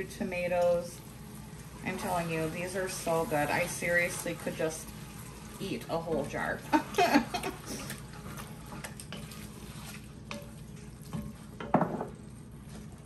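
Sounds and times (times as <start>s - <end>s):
wooden spoon stirring thick mixture: 0.3s - 13.0s
spoon knocking pot: 11.2s - 12.2s.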